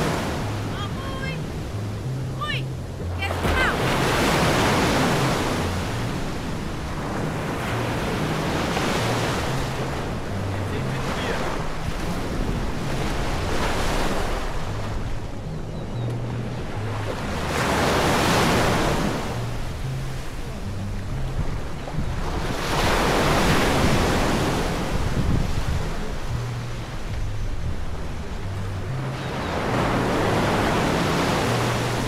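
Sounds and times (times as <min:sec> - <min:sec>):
ocean waves breaking: 0:00.0 - 0:32.0
wind buffeting microphone: 0:19.8 - 0:29.0.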